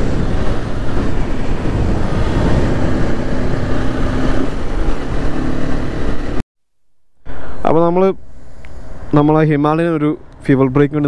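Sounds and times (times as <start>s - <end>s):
motorcycle engine drone: 0.0s - 6.4s, 7.2s - 11.0s
wind rush over microphone: 0.0s - 6.4s.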